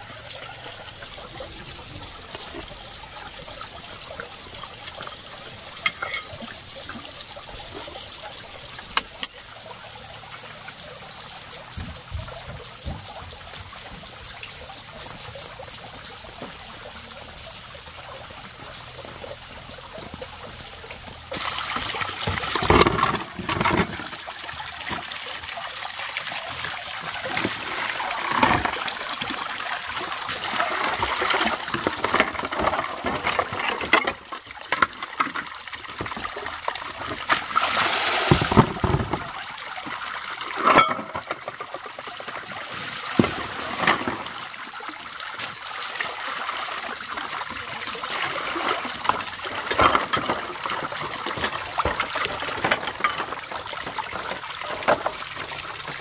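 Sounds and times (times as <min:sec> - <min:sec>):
water splashing into plastic basin: 0:21.3 - 0:56.0.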